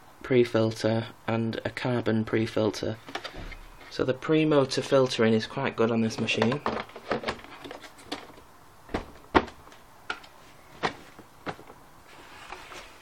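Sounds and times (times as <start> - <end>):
plastic parts clicking and knocking: 6.0 - 11.8.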